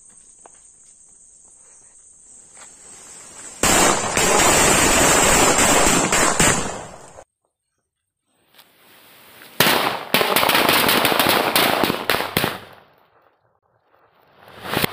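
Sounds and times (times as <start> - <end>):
firecrackers crackling: 2.6 - 7.2, 9.4 - 14.9
firecracker bangs: 3.6 - 7.2.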